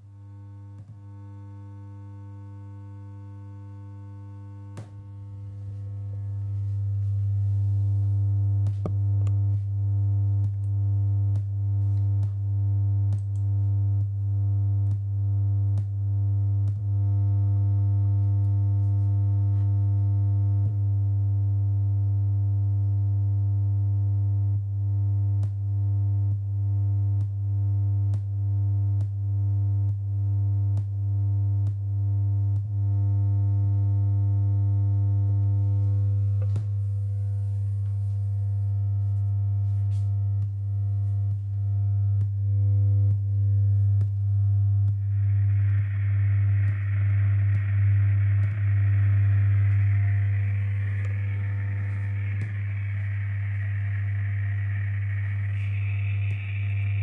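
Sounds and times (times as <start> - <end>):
low synthesizer drone: 0.0 - 20.9, 35.0 - 57.0.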